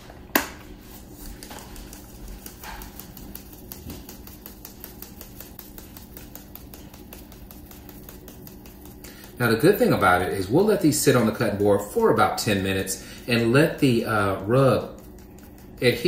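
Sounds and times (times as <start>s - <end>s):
shaker bottle rattling: 1.3s - 10.0s.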